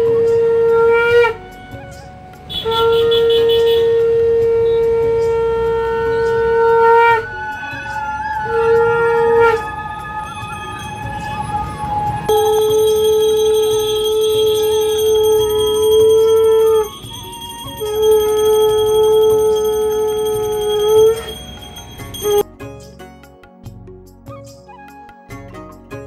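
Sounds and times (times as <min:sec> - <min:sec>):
conch shell blasts: 0:02.5 - 0:22.4.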